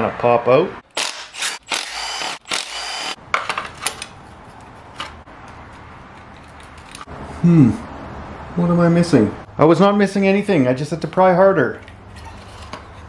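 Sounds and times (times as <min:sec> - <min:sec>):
cordless ratchet running: 0:00.9 - 0:03.2.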